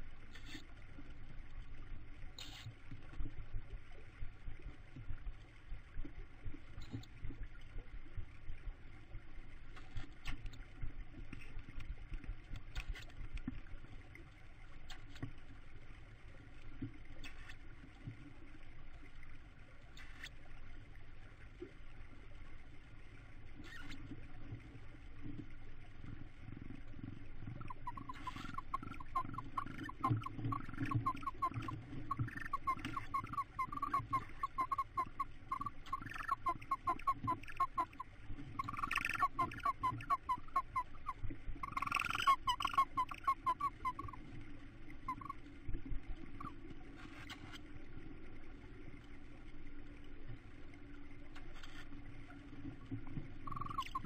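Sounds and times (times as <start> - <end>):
owl chicks chittering: 27.6 - 38.0, 38.6 - 40.8, 41.6 - 44.2, 45.1 - 45.3, 53.5 - 54.0.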